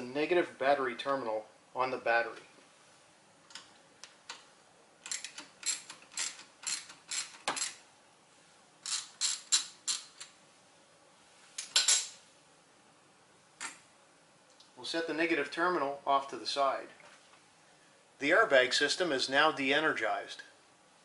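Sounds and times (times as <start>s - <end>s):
socket ratchet clicking: 5.0s - 7.8s.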